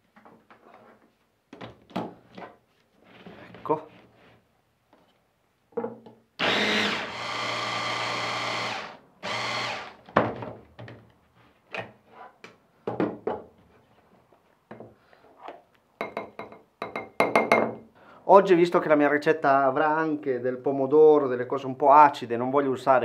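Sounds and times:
blender motor running: 6.4s - 10.0s.

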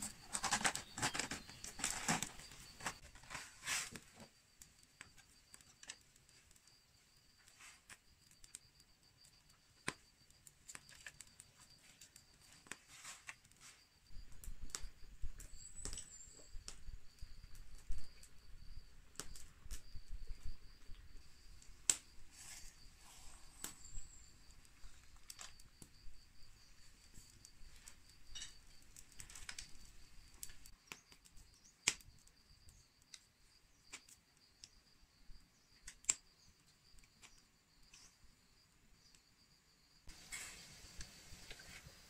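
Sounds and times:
insect trilling: 22.0s - 31.9s
sharp clicks and snaps: 30.4s - 32.1s, 35.8s - 36.2s.

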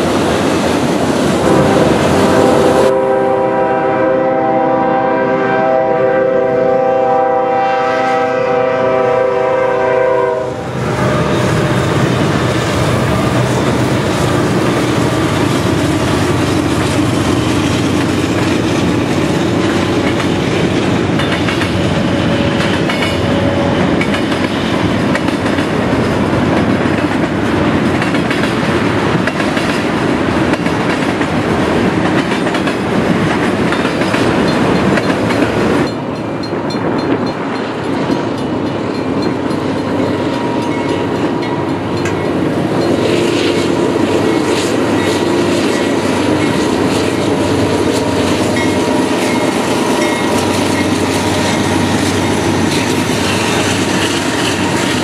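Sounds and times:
diesel locomotives approaching: 0.0s - 55.0s
freight train rumbling past: 0.0s - 55.0s
wheels clicking over rail joints: 10.9s - 55.0s.

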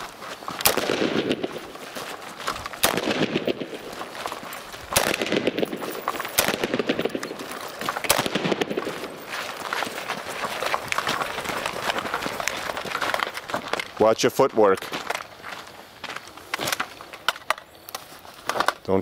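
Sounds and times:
gunshots: 0.6s - 1.8s, 2.7s - 4.1s, 4.9s - 9.2s.

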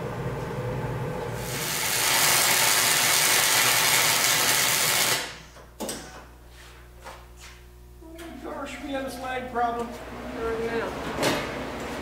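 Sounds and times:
grinder grinding steel: 1.5s - 5.1s.

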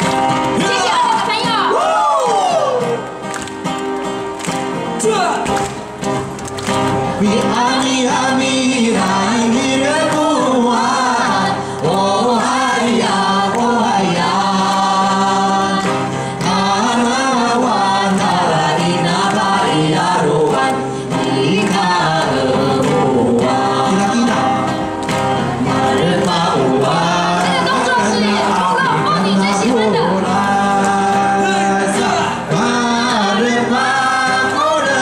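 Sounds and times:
acoustic guitar: 0.0s - 35.0s
group singing through microphones: 7.0s - 35.0s.

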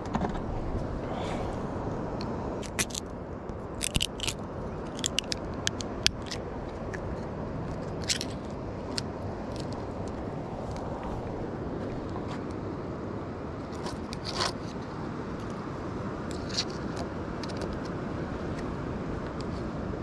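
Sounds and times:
steady background hiss: 0.0s - 20.0s
small clicks and crackles: 3.8s - 10.9s, 16.3s - 18.0s.

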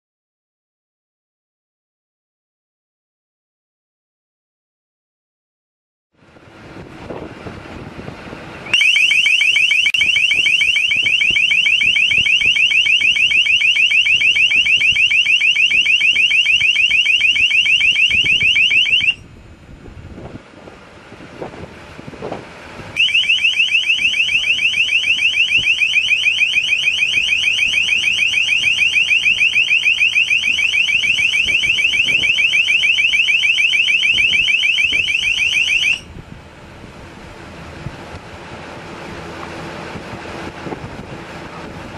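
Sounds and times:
high-pitched warbling tone: 8.7s - 19.2s, 23.0s - 36.1s.

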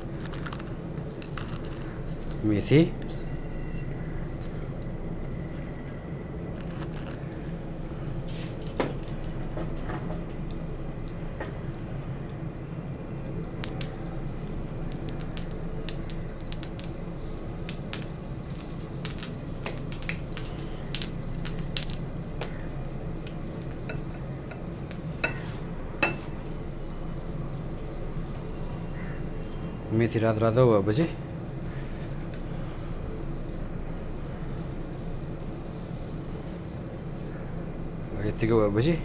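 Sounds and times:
seeds sizzling in hot oil: 0.0s - 9.4s, 10.3s - 39.0s
steady low hum: 0.0s - 39.0s
sharp pops and clicks: 13.6s - 14.0s, 14.9s - 17.0s, 17.6s - 22.6s, 23.2s - 25.1s.

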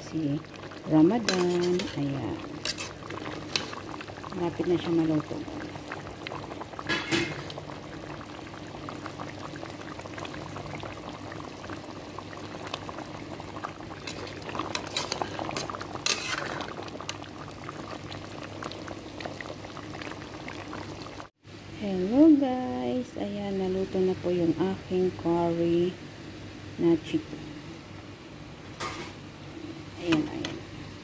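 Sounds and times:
curry bubbling in a pot: 0.0s - 21.4s.

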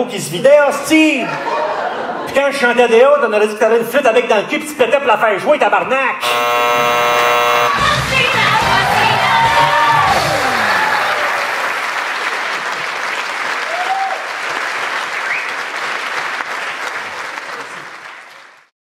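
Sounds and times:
audience applauding: 7.7s - 18.7s.

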